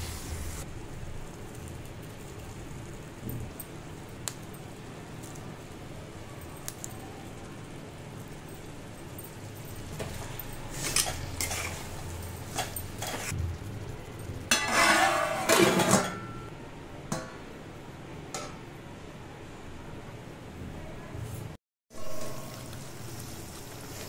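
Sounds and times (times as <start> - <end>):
spoon scraping metal pan: 10.7 - 13.4, 14.5 - 16.4
metal plate clattering on pan: 14.5 - 16.5.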